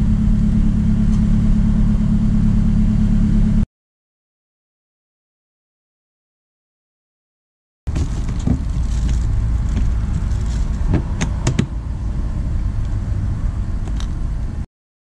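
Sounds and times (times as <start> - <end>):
low rumble: 0.0 - 3.6, 7.9 - 14.7
plastic box clicks and knocks: 7.9 - 11.8.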